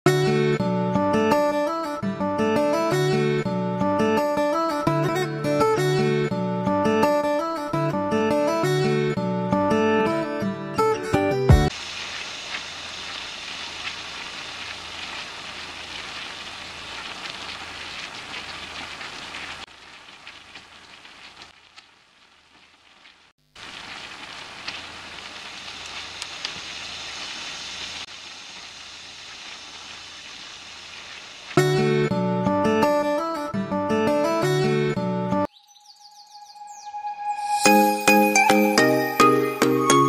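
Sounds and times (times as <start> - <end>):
chicken frying in hot oil: 11.7 - 31.7.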